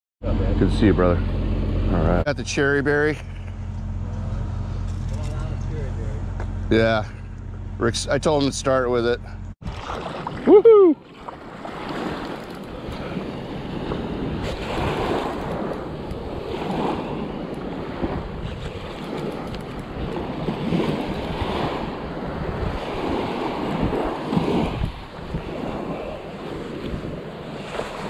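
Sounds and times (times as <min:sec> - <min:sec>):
wind rumbling on microphone: 0:09.6 - 0:28.0
small surf breaking on sand: 0:09.7 - 0:28.0.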